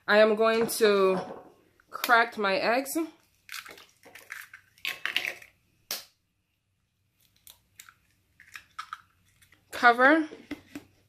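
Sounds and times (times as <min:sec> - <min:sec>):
eggshells cracking: 0:03.4 - 0:06.0, 0:07.3 - 0:09.7.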